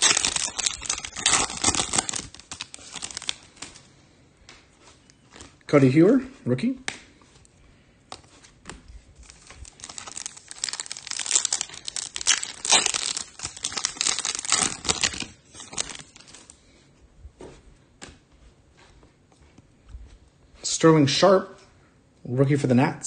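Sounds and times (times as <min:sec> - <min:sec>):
packaging crinkling and tearing: 0:00.0 - 0:03.9, 0:09.2 - 0:16.6.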